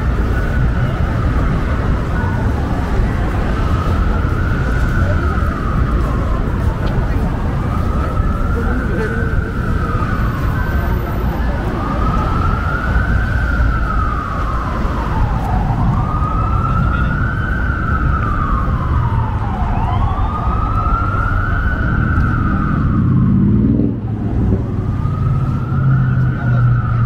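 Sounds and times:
city traffic rumble: 0:00.0 - 0:27.0
emergency siren wailing: 0:00.0 - 0:27.0.

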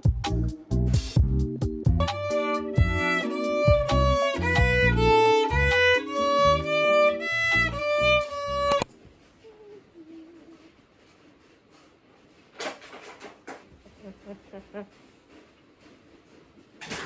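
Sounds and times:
lower accompaniment: 0:01.9 - 0:08.9
violin slow melody: 0:02.0 - 0:08.9.

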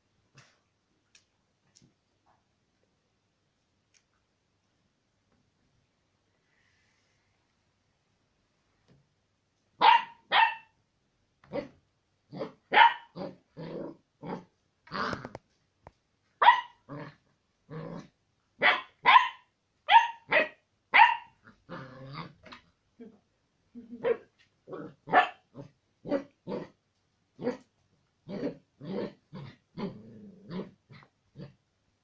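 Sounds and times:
puppy yapping: 0:09.8 - 0:10.7, 0:12.4 - 0:13.2, 0:16.4 - 0:16.8, 0:18.6 - 0:21.4, 0:25.1 - 0:25.4
puppy grumbling: 0:21.4 - 0:23.2, 0:28.2 - 0:31.6.

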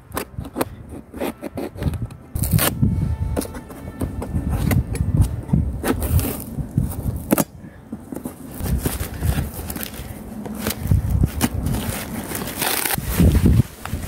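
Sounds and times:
packaging rustling and crackling: 0:08.1 - 0:14.0.

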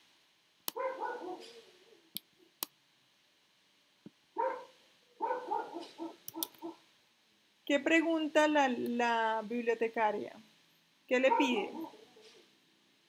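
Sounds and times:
dog barking: 0:00.7 - 0:01.8, 0:04.4 - 0:06.8, 0:11.2 - 0:12.4
computer mouse clicks: 0:06.2 - 0:06.6.

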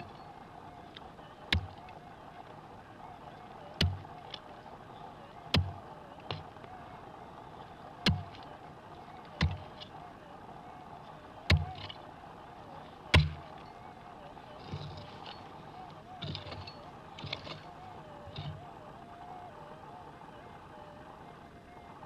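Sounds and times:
pick striking stony soil: 0:03.8 - 0:04.0, 0:11.5 - 0:11.9, 0:13.1 - 0:13.5.

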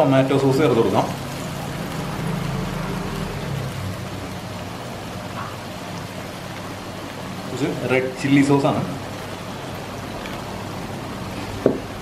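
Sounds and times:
sauce sizzling in a wok: 0:00.0 - 0:12.0.

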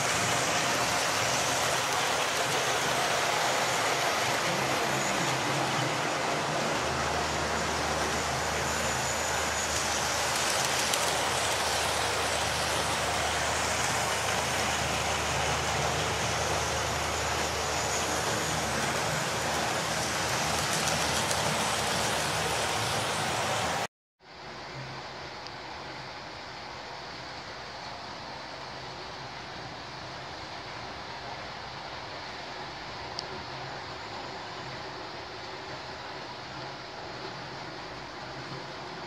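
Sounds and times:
model trains whirring on rails: 0:00.0 - 0:23.9, 0:25.2 - 0:39.0.

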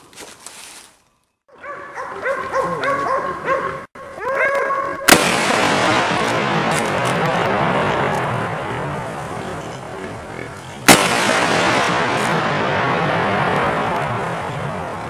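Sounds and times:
dogs barking: 0:01.5 - 0:05.1
rifle shot: 0:05.1 - 0:08.4, 0:10.8 - 0:15.0
loud noisy din: 0:05.1 - 0:15.0.

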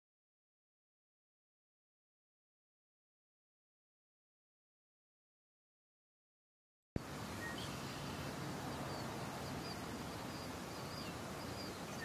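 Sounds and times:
steady background hiss: 0:07.0 - 0:12.0
faint bird chirps: 0:07.4 - 0:12.0.

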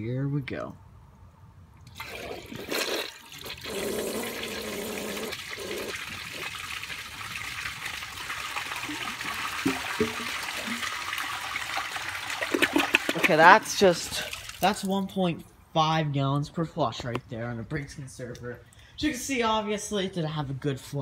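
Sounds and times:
toilet flushing: 0:01.9 - 0:14.6.

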